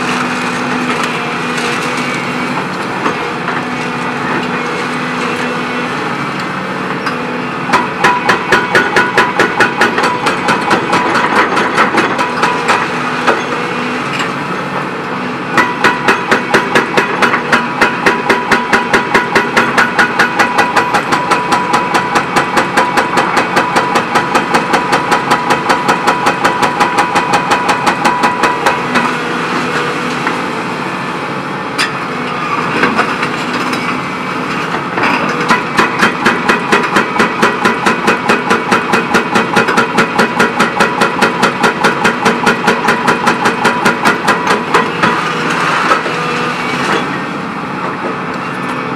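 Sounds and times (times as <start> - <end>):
hydraulic hammer striking: 7.7 - 13.6, 15.6 - 30.4, 35.0 - 45.2.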